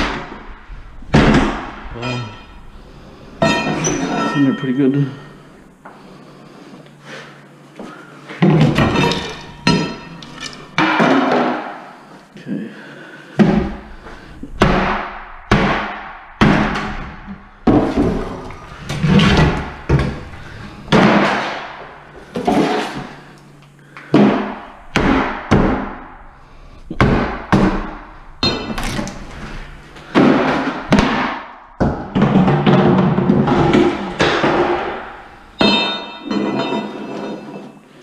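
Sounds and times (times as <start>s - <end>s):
metallic ring: 2.0s - 2.8s, 3.4s - 5.5s, 35.6s - 37.9s.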